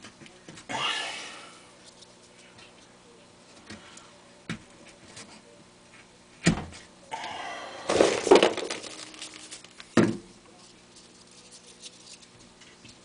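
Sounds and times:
paper crinkling: 0:07.9 - 0:10.0, 0:10.6 - 0:12.4.

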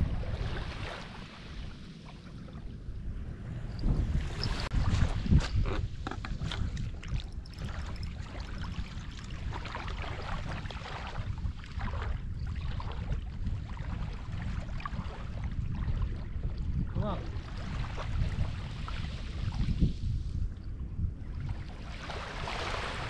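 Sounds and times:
small waves lapping at shore: 0:00.0 - 0:20.5, 0:21.2 - 0:23.0
wind buffeting microphone: 0:00.0 - 0:23.0.

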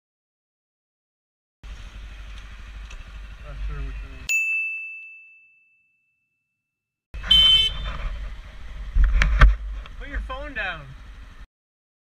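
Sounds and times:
road and vehicle noise: 0:01.6 - 0:04.3, 0:07.2 - 0:11.5
high-pitched bell ding: 0:04.3 - 0:06.3.

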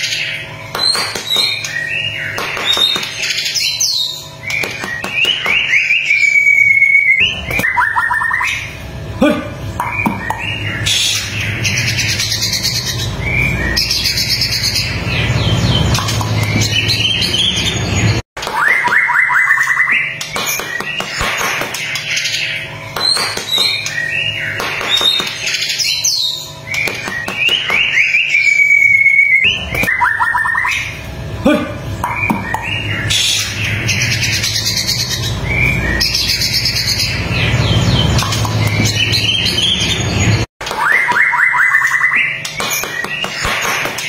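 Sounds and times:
bird singing whistled song: 0:00.8 - 0:08.7, 0:18.6 - 0:21.0, 0:23.0 - 0:30.9, 0:40.8 - 0:43.3.

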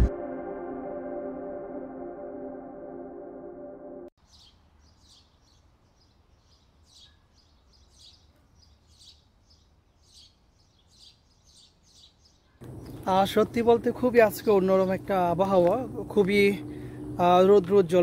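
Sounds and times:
ambient background music: 0:00.0 - 0:04.1
bird chirping: 0:04.2 - 0:14.8
faint forest ambience: 0:04.2 - 0:17.6.

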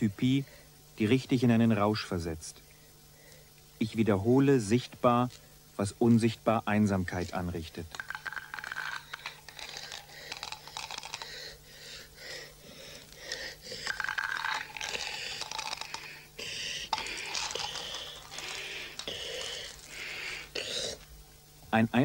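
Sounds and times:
glass marbles clicking and rattling: 0:07.9 - 0:11.5, 0:13.8 - 0:16.2, 0:16.9 - 0:19.9.

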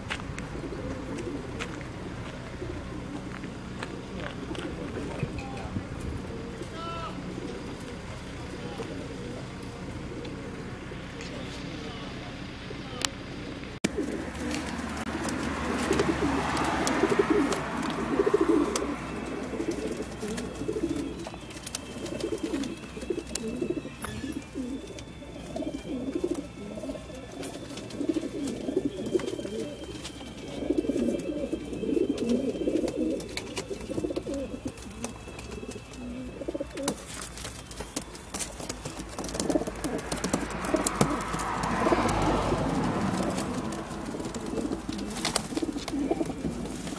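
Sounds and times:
pigeons cooing: 0:00.0 - 0:46.9.

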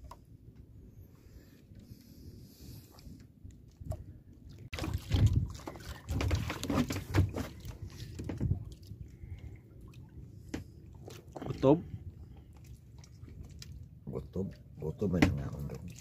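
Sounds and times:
water lapping against boat: 0:00.0 - 0:16.0
splashing and knocking: 0:04.6 - 0:08.8, 0:15.0 - 0:16.0.

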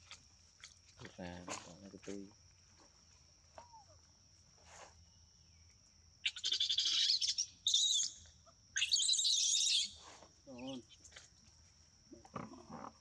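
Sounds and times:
high-pitched chirping calls: 0:06.2 - 0:08.2, 0:08.8 - 0:10.0.

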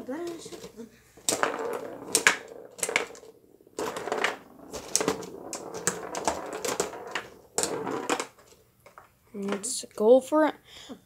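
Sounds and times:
foosball players clacking: 0:00.0 - 0:09.7.

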